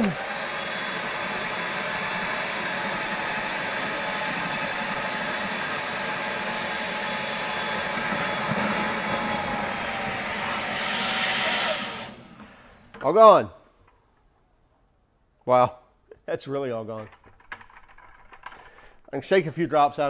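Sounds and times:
water sucked through hose: 0:00.0 - 0:12.8
shop vacuum motor running: 0:00.0 - 0:13.1.

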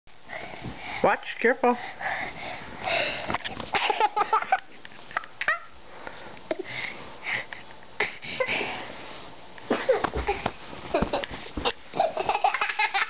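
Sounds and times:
boy laughing and giggling: 0:03.7 - 0:05.8, 0:09.7 - 0:13.0.

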